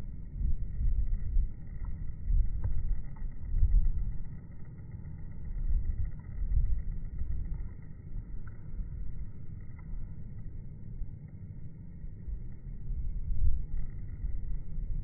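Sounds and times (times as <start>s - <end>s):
low outdoor rumble: 0.0s - 15.0s
faint ticks: 0.4s - 11.5s.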